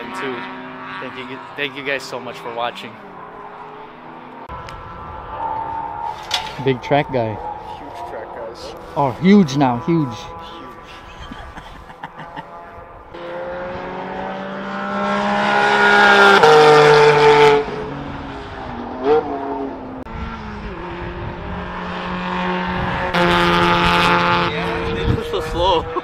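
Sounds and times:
race cars driving past: 0.0s - 26.0s.

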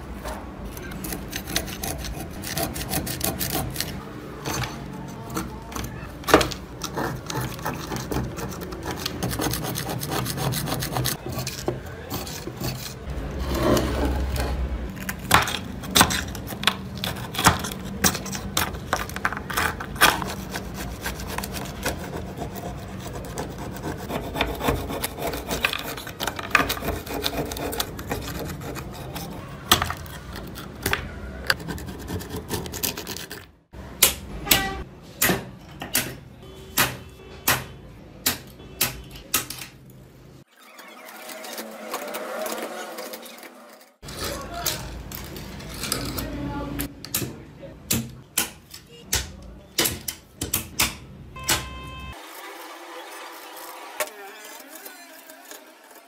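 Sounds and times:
metal tool scraping hammer head: 0.9s - 14.6s.

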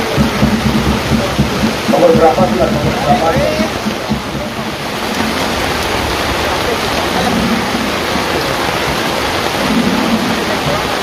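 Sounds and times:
faint voices: 0.0s - 11.0s
loud rushing noise: 0.0s - 11.0s.

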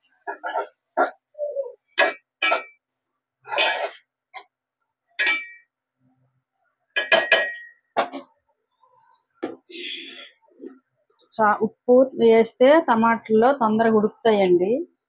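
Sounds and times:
spoon scraping metal pot: 3.5s - 4.1s.

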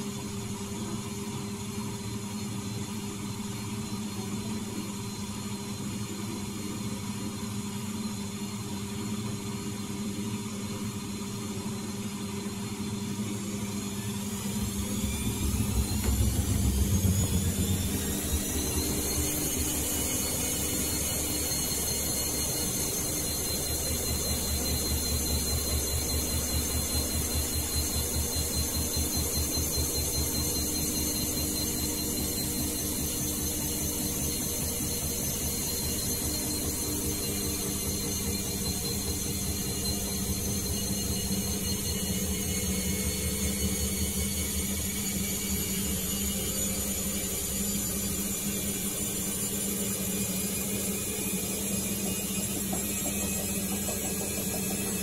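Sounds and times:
washing machine motor whine: 0.0s - 55.0s
drum low rumble: 14.2s - 20.3s.

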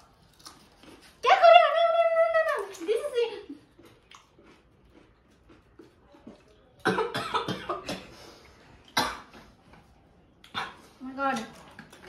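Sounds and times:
person coughing: 6.8s - 8.1s.

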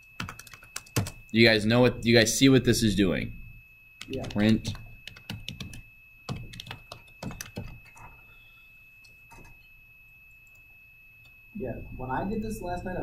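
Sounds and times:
computer keyboard typing: 0.0s - 1.3s, 4.0s - 8.2s.

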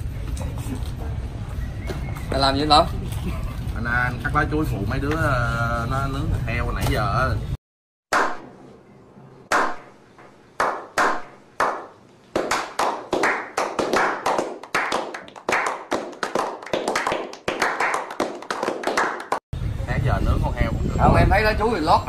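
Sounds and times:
single hand claps: 9.5s - 9.8s, 10.6s - 19.4s
group applause: 10.6s - 19.4s.

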